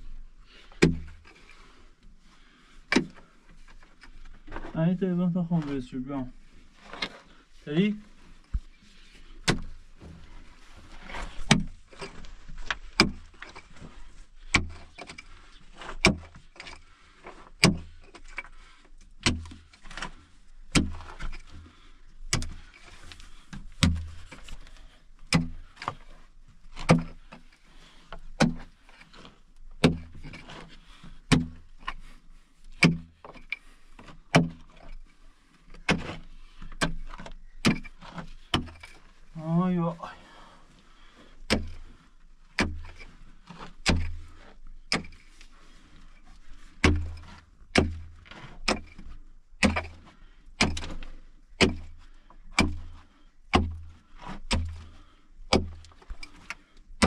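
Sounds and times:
pickaxe striking earth: 0.8s - 1.3s, 2.9s - 3.2s, 9.4s - 10.2s, 11.0s - 18.5s, 19.2s - 24.6s, 25.3s - 26.1s, 26.8s - 27.4s, 28.4s - 30.7s, 31.3s - 32.1s, 32.7s - 34.9s, 35.7s - 39.6s, 41.4s - 41.9s, 42.5s - 45.3s, 46.7s - 57.0s.

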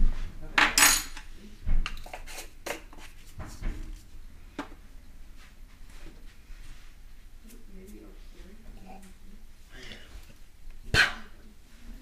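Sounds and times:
utensil scraping countertop: 1.9s - 4.0s.

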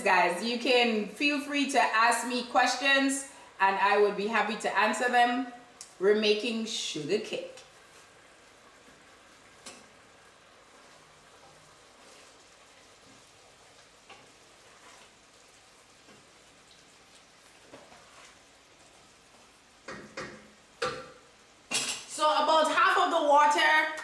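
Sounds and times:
mixture sizzling and bubbling: 0.0s - 24.0s
wooden spoon stirring: 10.6s - 21.0s
knocks: 19.9s - 21.2s.

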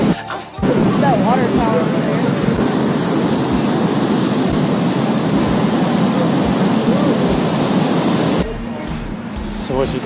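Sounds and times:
paddlewheel churning water: 0.6s - 8.4s.

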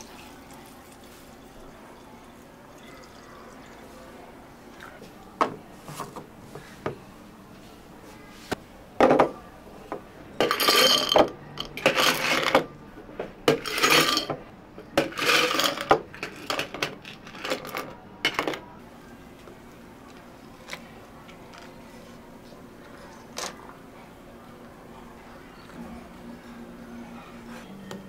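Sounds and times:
cups and utensils clinking: 10.4s - 12.7s, 13.5s - 14.4s, 15.0s - 18.6s.

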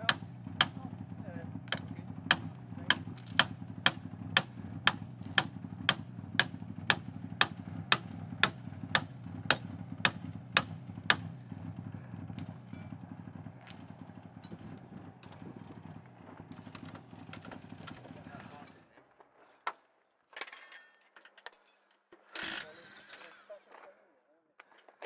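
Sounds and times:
engine idling: 0.0s - 18.8s.

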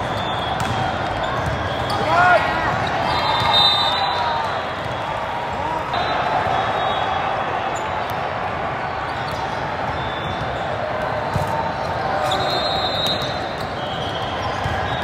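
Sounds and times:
volleyballs hit and bouncing: 0.0s - 6.6s, 7.9s - 15.0s.

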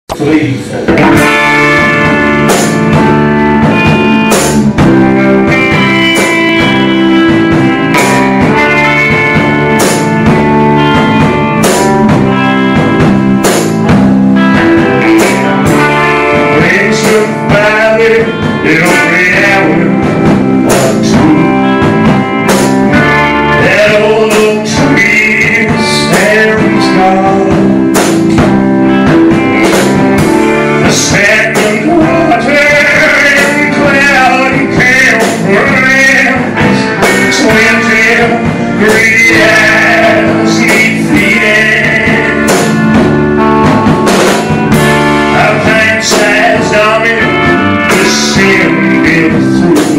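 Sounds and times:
drum kit beat: 0.1s - 49.9s
electric guitar: 0.1s - 49.9s
man singing into a microphone: 14.5s - 21.9s, 22.9s - 28.0s, 30.4s - 43.1s, 45.2s - 49.9s.

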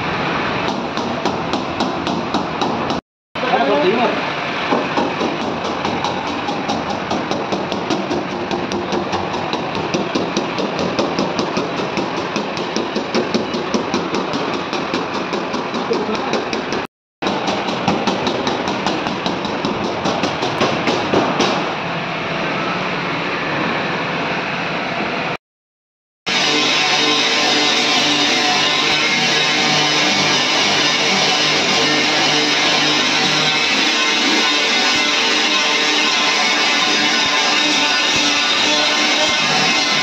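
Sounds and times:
machine running: 26.3s - 40.0s.

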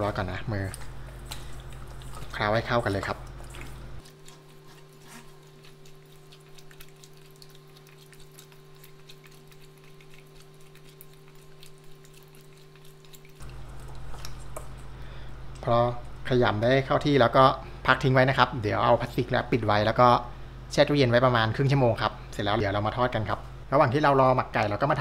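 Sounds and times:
steady low hum: 0.0s - 25.0s
wet squishing of raw chicken: 0.5s - 15.0s.

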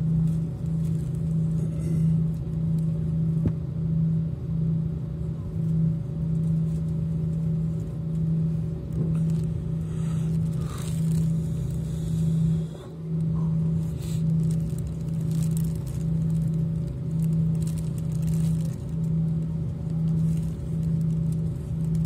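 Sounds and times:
aircraft cabin engine drone: 0.0s - 22.0s.

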